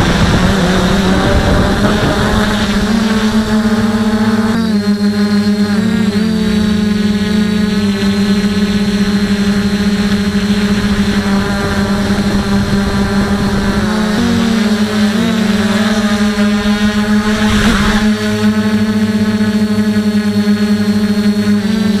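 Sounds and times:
drone propellers whining: 0:00.0 - 0:22.0.

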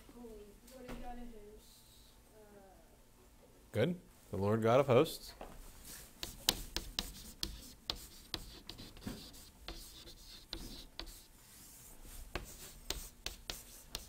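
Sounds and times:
chalk tapping and scratching: 0:05.9 - 0:14.0.

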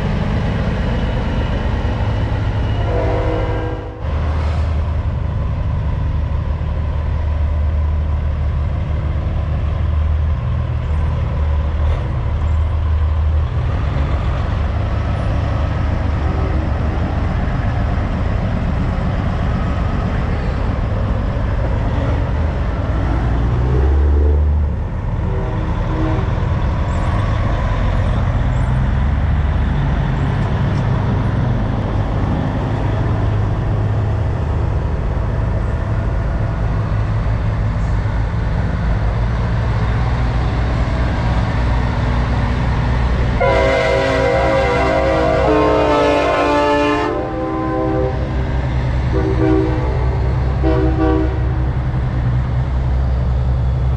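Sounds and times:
diesel truck engines: 0:00.0 - 0:53.9.

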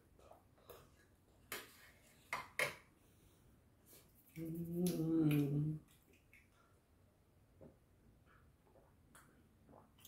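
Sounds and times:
person humming: 0:04.4 - 0:05.8.

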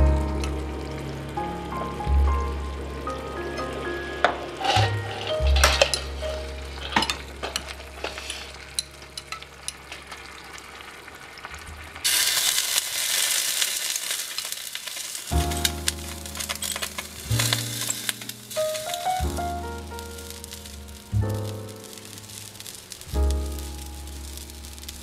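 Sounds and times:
background music: 0:00.0 - 0:09.6, 0:15.3 - 0:25.0
broth sizzling in a pot: 0:00.0 - 0:25.0.

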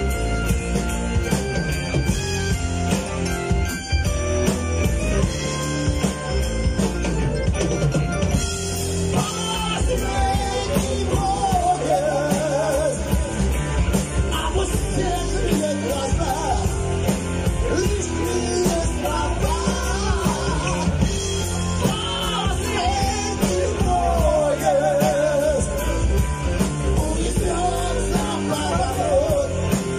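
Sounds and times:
bass guitar: 0:00.0 - 0:29.9
drum kit: 0:00.0 - 0:29.9
electric guitar: 0:00.0 - 0:29.9
keyboards: 0:00.0 - 0:29.9
lead vocal singing: 0:09.1 - 0:29.9.

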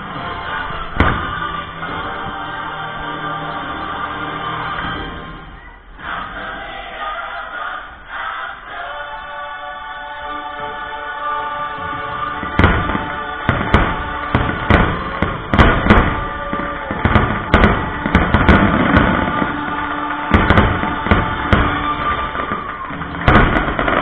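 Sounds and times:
fireworks bangs: 0:00.0 - 0:03.7, 0:11.6 - 0:24.0
loud show music: 0:00.0 - 0:24.0.

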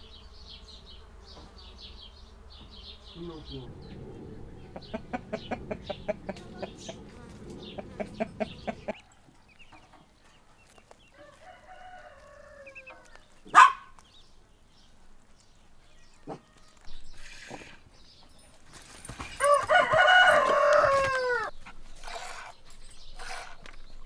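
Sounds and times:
rooster clucking: 0:03.6 - 0:09.0
rooster crowing: 0:11.1 - 0:13.2, 0:19.4 - 0:21.5.

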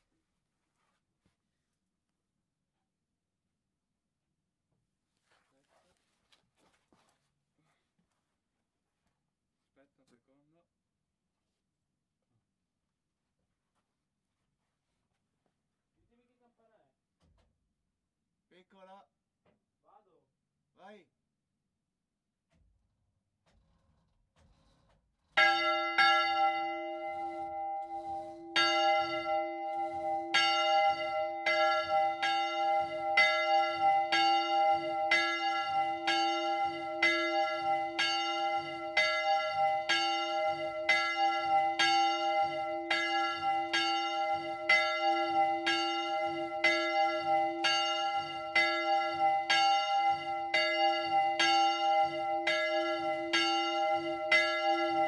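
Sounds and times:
church bell ringing: 0:25.4 - 0:55.0.

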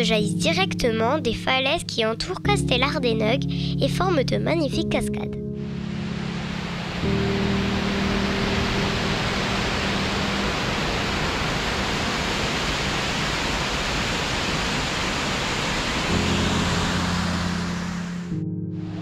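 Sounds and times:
background music notes: 0:00.0 - 0:11.5, 0:16.0 - 0:19.0
waterfall rushing: 0:05.6 - 0:19.0.

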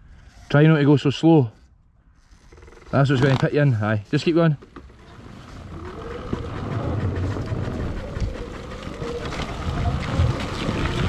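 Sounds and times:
steady rumble: 0:04.6 - 0:11.0.

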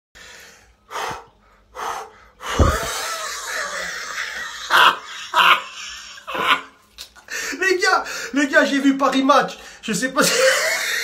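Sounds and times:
man breathing heavily: 0:00.2 - 0:03.1.

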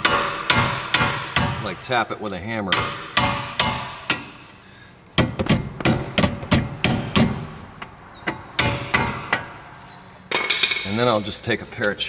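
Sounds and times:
hammer tapping on metal: 0:02.7 - 0:04.3, 0:05.2 - 0:09.6.

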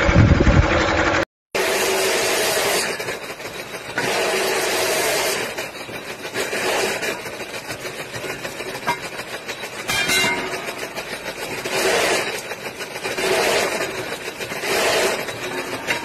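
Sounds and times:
drill grinding through steel: 0:01.6 - 0:07.4, 0:10.4 - 0:16.0.

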